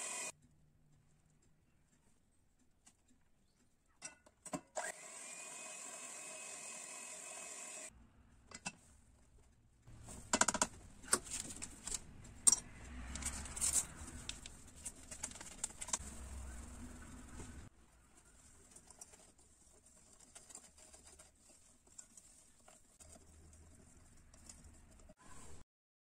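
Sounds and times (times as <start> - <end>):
electric hand mixer running: 0.0 - 0.3, 4.8 - 7.9.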